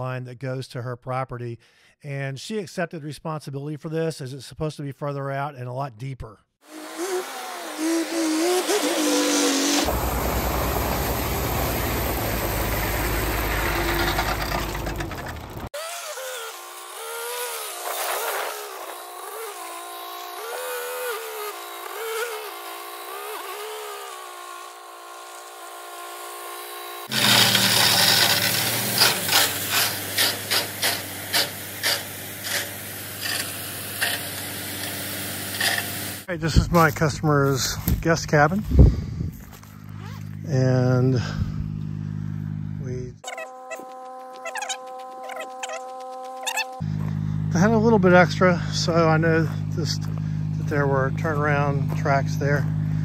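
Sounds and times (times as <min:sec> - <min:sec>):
diesel truck engine running: 0:07.8 - 0:15.7, 0:44.6 - 0:53.0
gravel dumping: 0:07.8 - 0:15.7, 0:17.7 - 0:19.1, 0:27.1 - 0:38.8.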